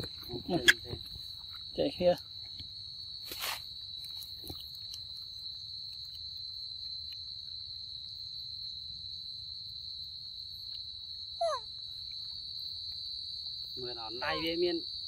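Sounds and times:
high-pitched insect drone: 13.6 - 15.0.

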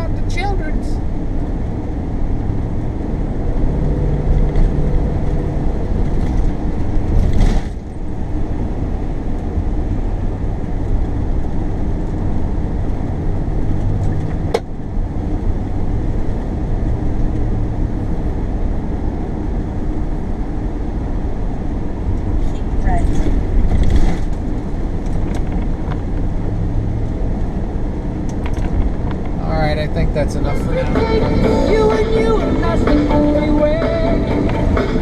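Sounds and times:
loud rush: 30.0 - 35.0.

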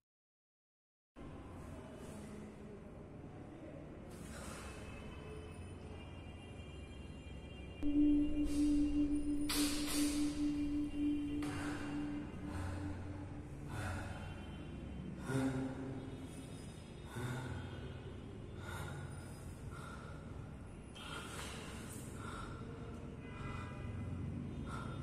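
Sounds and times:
low suspense music drone: 7.8 - 25.0
heavy uneven breathing and gasps: 11.5 - 16.2, 17.0 - 25.0.

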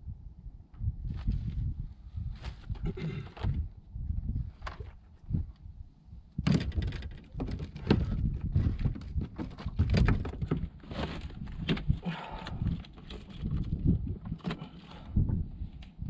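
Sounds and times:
wind rumble on microphone: 0.0 - 16.0.

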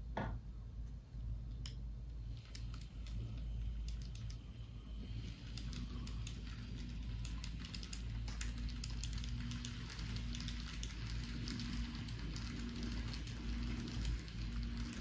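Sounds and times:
model train motor hum: 2.2 - 15.0
wheels clicking over rail joints: 5.5 - 15.0.

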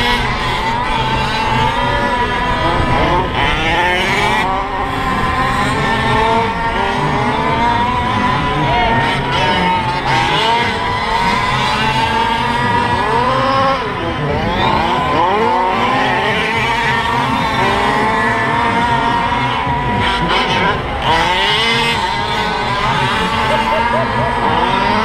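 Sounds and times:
small two-stroke engines racing: 0.0 - 25.0.

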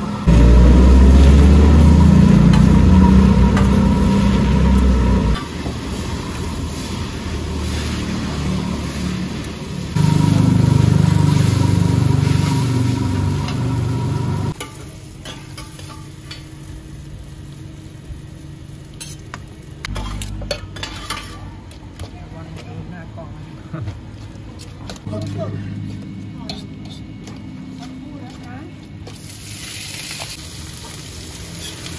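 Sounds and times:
low rumble: 0.2 - 5.4
noodles sizzling in a pan: 29.2 - 31.9.

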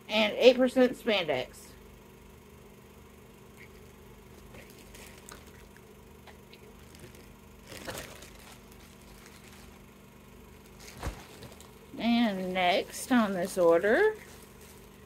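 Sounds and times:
steady low hum: 0.0 - 15.0
handling and rustling noises: 4.3 - 5.8, 6.6 - 15.0.

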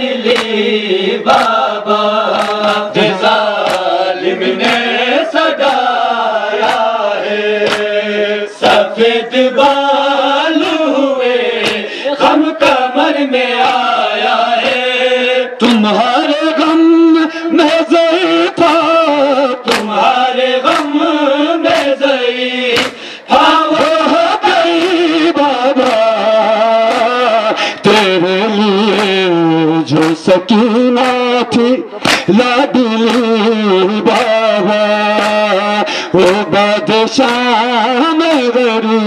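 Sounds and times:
men chanting a lament: 0.0 - 39.0
chest-beating slaps: 0.2 - 0.7, 1.3 - 1.7, 2.3 - 5.8, 6.6 - 7.0, 7.6 - 8.0, 11.6 - 12.0, 14.6 - 14.9, 19.6 - 20.0, 20.6 - 21.0, 21.6 - 22.0, 22.7 - 23.1, 25.8 - 27.2, 28.8 - 29.2, 29.9 - 31.3, 32.0 - 33.4, 34.1 - 34.4, 35.1 - 35.5.

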